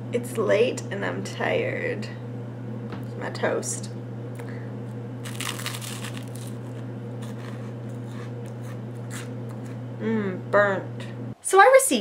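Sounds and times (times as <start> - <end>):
steady low hum: 0.0 - 12.0
crunching toast and chewing: 5.2 - 9.8.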